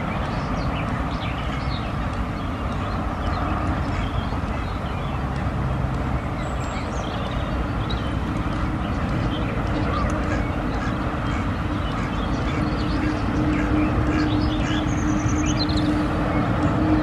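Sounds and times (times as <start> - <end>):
rain on fabric canopy: 0.0 - 13.1.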